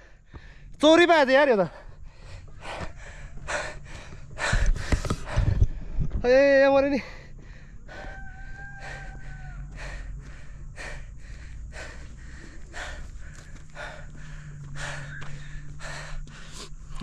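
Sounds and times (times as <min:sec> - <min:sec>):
hard breathing huffs: 0:00.0 - 0:00.8, 0:01.7 - 0:06.1, 0:07.0 - 0:17.0
low rumble: 0:01.7 - 0:06.4.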